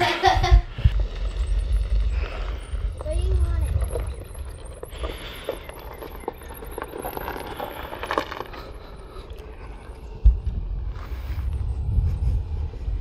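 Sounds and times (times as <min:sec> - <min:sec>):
golf cart pulling away over gravel: 0:01.1 - 0:10.1.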